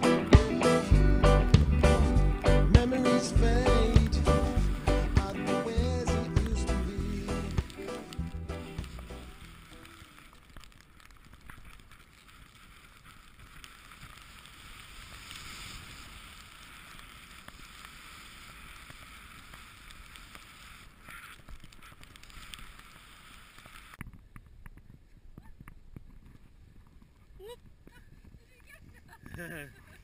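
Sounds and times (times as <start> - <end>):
faint clicks: 7.4 - 30.0
snowboard hissing on snow: 12.1 - 24.0.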